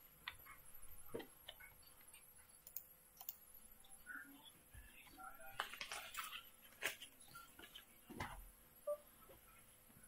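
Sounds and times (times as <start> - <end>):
faint mouse clicks: 1.4 - 3.4.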